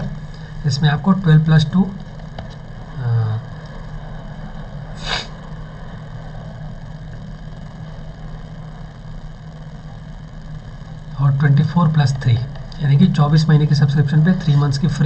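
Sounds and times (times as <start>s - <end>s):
low room hum: 0.0s - 15.0s
short hiss burst: 5.0s - 5.3s.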